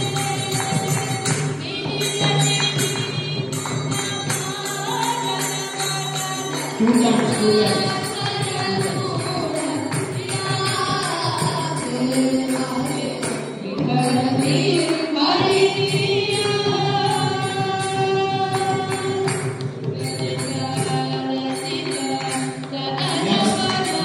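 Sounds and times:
group singing: 0:00.0 - 0:19.3, 0:20.0 - 0:24.0
jingling percussion: 0:00.0 - 0:24.0
hand claps: 0:18.5 - 0:24.0.

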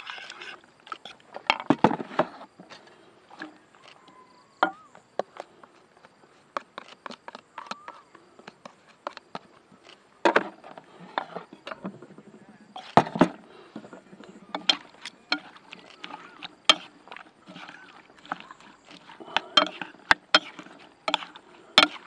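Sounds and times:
knife scraping a bowl: 0:00.0 - 0:01.2, 0:14.5 - 0:22.0.

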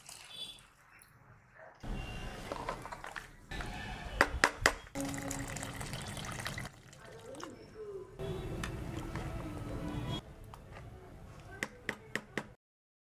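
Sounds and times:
water pouring into pot: 0:05.0 - 0:07.5.

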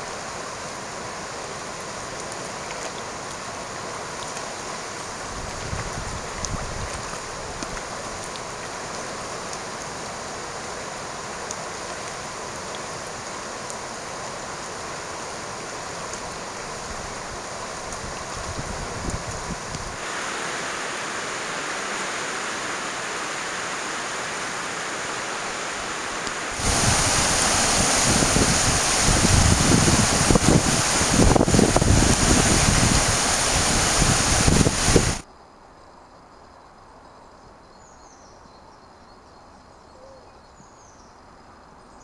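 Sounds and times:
river rapids rushing: 0:19.6 - 0:35.2.

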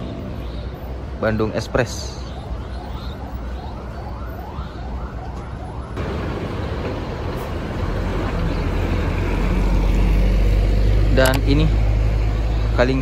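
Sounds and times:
bus engine: 0:00.0 - 0:01.2, 0:05.3 - 0:13.0.

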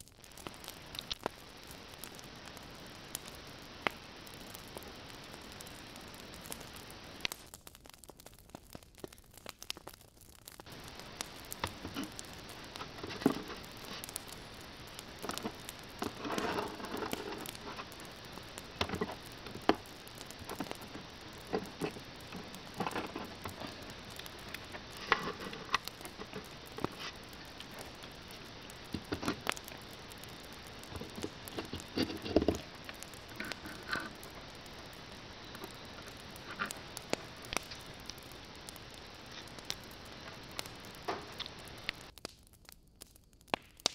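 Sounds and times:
steady hiss: 0:00.0 - 0:43.9
rustling: 0:10.3 - 0:42.1.

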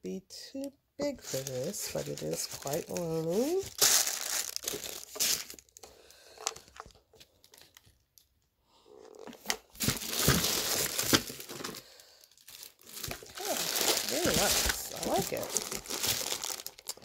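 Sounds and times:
paper rustling and crinkling: 0:01.1 - 0:05.8, 0:09.2 - 0:17.0.

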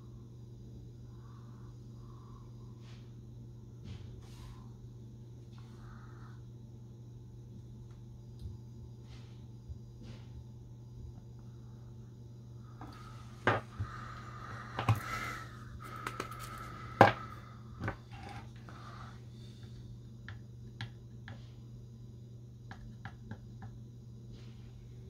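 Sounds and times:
steady low hum: 0:00.0 - 0:25.0
tools knocking on wooden bench: 0:13.4 - 0:13.7, 0:17.0 - 0:17.2.

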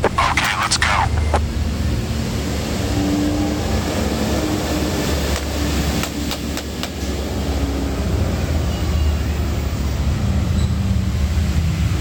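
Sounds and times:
low rumble: 0:01.0 - 0:02.8.

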